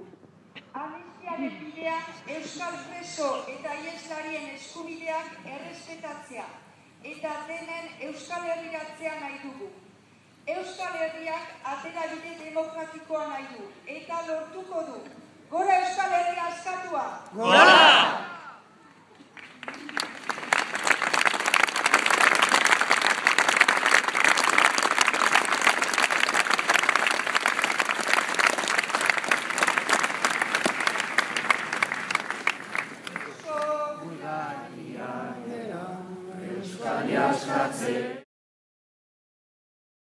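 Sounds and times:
voices chanting together: 0:17.4 - 0:18.5, 0:34.0 - 0:38.2
crowd applauding and cheering: 0:19.3 - 0:33.6.

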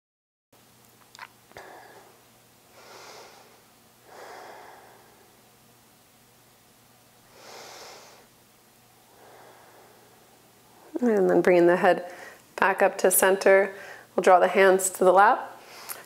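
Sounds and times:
person breathing softly: 0:01.6 - 0:05.4, 0:07.3 - 0:08.3, 0:09.0 - 0:10.4, 0:12.1 - 0:12.4, 0:13.7 - 0:14.1.

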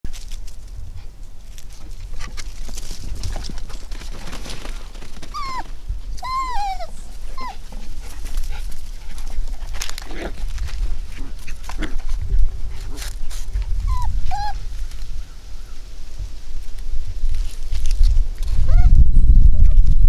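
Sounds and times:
puppy yipping: 0:05.3 - 0:07.6, 0:13.9 - 0:14.6
steady low rumble: 0:05.4 - 0:20.0.

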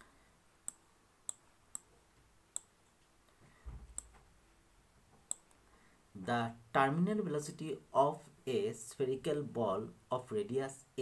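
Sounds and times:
soft low thump: 0:03.7 - 0:04.3.

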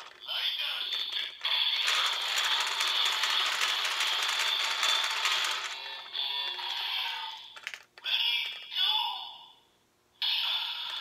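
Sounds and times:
toy crank ratchet clicking: 0:00.0 - 0:00.3, 0:00.9 - 0:08.6.

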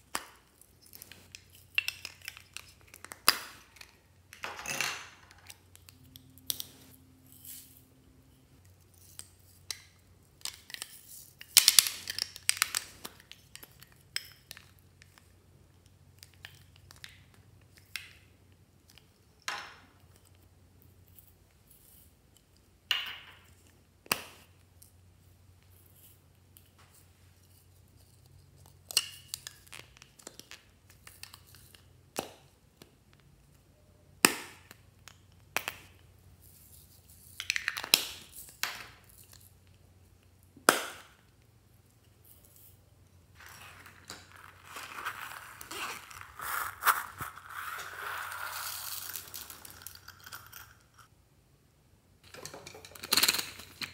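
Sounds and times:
glitter crinkling and rustling: 0:00.0 - 0:04.1, 0:41.4 - 0:51.1.

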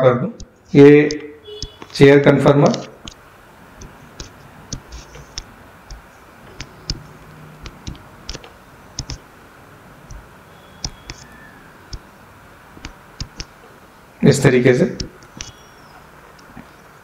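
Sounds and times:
faint room hiss: 0:00.0 - 0:17.0
stylus clicking on drawing tablet: 0:00.4 - 0:02.0, 0:03.8 - 0:09.3, 0:10.1 - 0:12.1, 0:12.8 - 0:13.6, 0:15.0 - 0:15.6.

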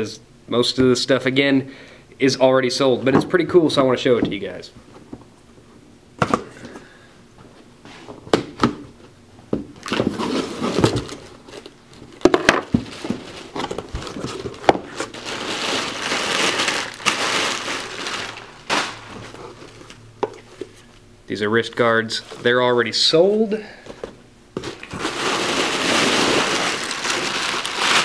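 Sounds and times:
rustling in cardboard box: 0:12.6 - 0:19.9, 0:24.7 - 0:28.0.

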